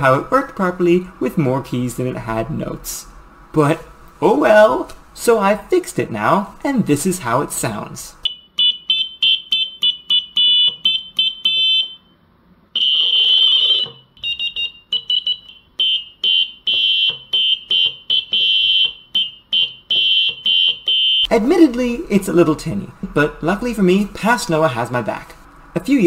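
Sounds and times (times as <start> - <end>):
tinny electronic buzzer notes: 8.2 - 12.1, 12.8 - 21.3.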